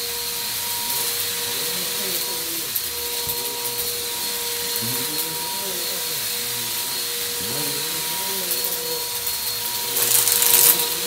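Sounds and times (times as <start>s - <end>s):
vacuum cleaner running: 0.0s - 11.0s.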